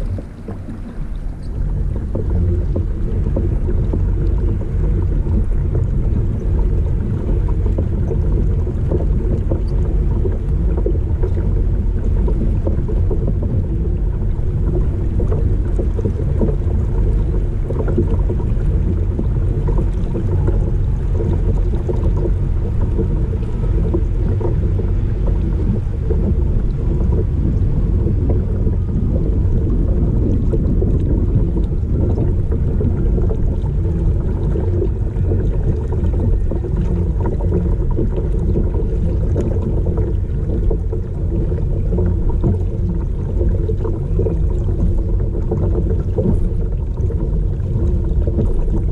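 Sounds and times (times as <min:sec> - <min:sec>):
low rumble of wind and water: 0:00.0 - 0:48.9.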